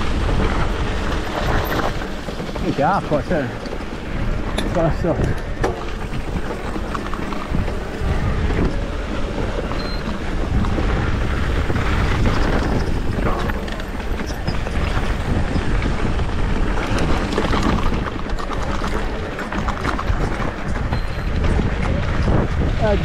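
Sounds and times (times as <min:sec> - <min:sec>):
bike knocks and rattles: 0:00.0 - 0:23.0
wind rushing over microphone: 0:00.0 - 0:23.0.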